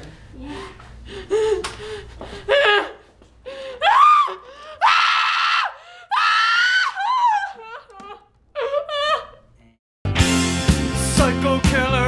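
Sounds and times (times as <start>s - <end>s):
woman screaming: 3.8s - 7.9s.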